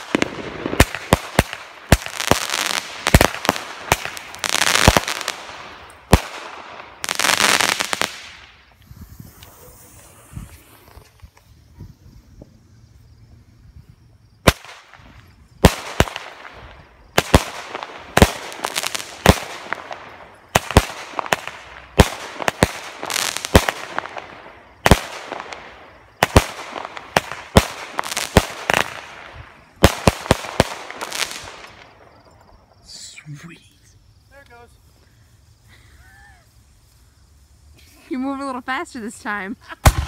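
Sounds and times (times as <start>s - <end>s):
fireworks bangs: 0.0s - 12.6s, 14.4s - 32.6s, 39.8s - 40.0s
fireworks hissing: 0.0s - 31.9s, 32.8s - 40.0s.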